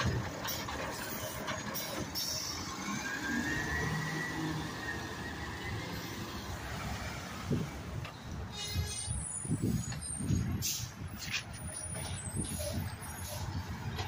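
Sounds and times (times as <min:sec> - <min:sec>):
garbage truck diesel engine: 0:00.0 - 0:14.0.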